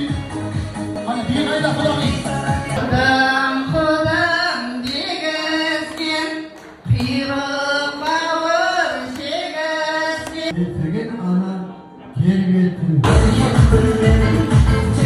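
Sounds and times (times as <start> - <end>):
woman singing into a microphone: 2.7 - 10.5.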